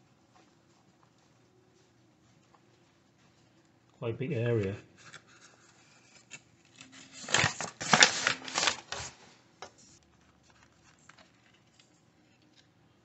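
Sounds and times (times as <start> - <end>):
paper bag rustling: 5.1 - 12.0.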